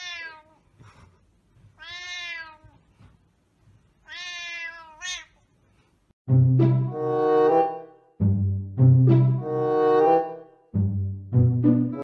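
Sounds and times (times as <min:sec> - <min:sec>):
cat meowing: 0:00.0 - 0:00.6, 0:01.8 - 0:02.8, 0:04.0 - 0:05.4.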